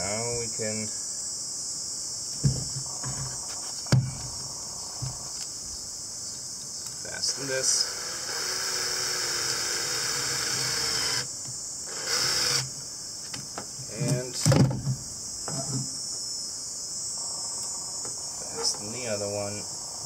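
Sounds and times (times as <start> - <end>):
insects chirring: 0.0 - 20.0
cordless drill spinning: 7.3 - 11.3, 11.9 - 12.7.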